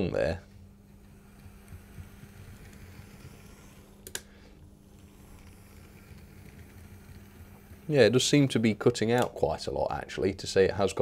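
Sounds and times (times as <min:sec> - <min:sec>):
low hum: 0:00.0 - 0:10.0
model train mechanism whirring: 0:00.8 - 0:09.3.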